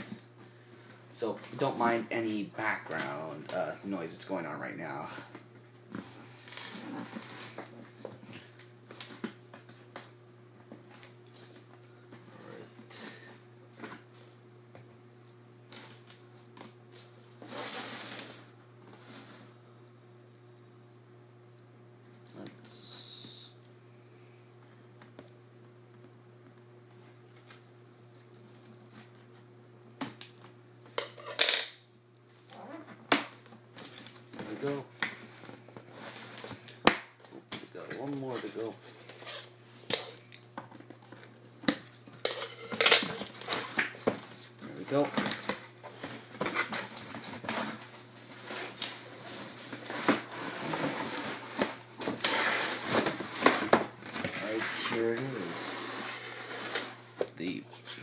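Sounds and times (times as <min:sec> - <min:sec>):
low background hum: 0:00.0 - 0:58.0
cardboard scraping and rustling: 0:45.1 - 0:57.2.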